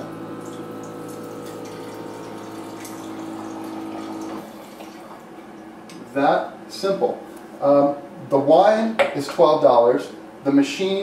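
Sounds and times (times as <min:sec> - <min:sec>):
wine pouring into glass: 0:00.0 - 0:05.3
pump hum: 0:00.0 - 0:06.3.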